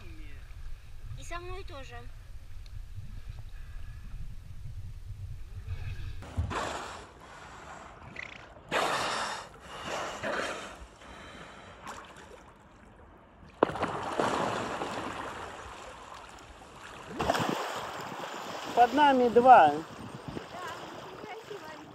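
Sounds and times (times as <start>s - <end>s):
whales blowing through blowholes: 5.6s - 8.1s
water churning and splashing: 6.2s - 21.9s
water sloshing: 11.5s - 21.9s.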